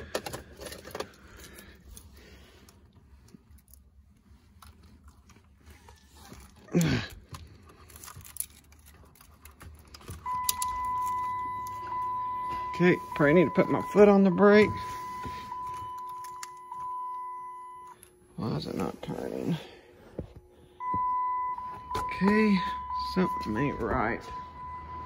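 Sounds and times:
car key jangling and clicking: 6.4s - 12.6s, 15.0s - 17.2s
electronic warning tone: 10.2s - 19.7s, 20.7s - 25.0s.

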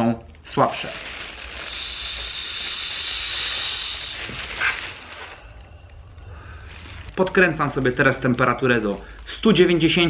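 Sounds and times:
vapour hissing through valve: 1.2s - 5.4s
breathy puff: 2.6s - 5.0s.

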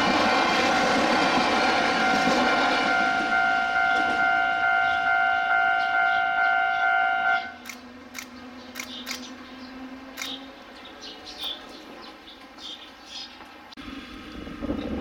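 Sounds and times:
passing train noise: 0.0s - 15.0s.

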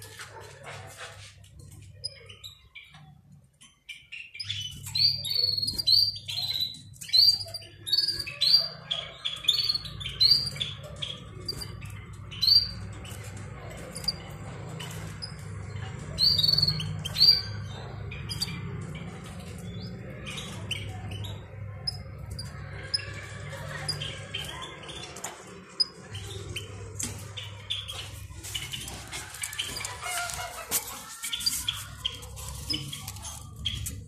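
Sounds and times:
goldfinches chirping: 3.9s - 13.2s, 16.1s - 23.1s.

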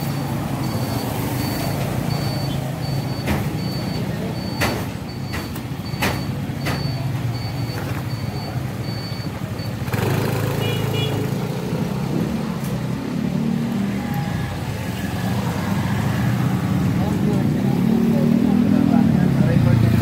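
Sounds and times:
short high-pitched beeps: 0.0s - 10.2s
heavy vehicle engine rumbling: 0.0s - 20.0s
rush of traffic noise: 0.0s - 20.0s.

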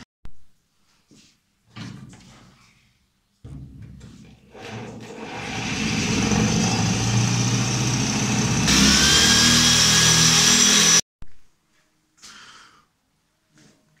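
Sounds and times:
electric drill drilling into metal: 5.0s - 11.0s.

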